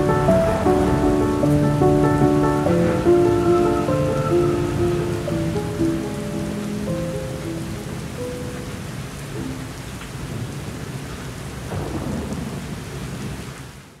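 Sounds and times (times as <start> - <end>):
low roll of thunder: 0.0 - 6.6, 10.2 - 14.0
steady rain: 0.0 - 14.0.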